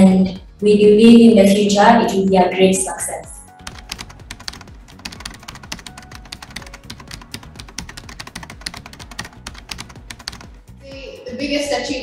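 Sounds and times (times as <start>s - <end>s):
keyboard typing clicks: 3.6s - 10.6s.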